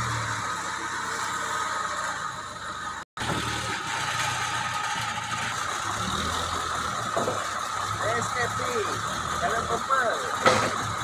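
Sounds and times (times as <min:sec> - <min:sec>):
diesel lorry engine idling: 0:00.0 - 0:11.0.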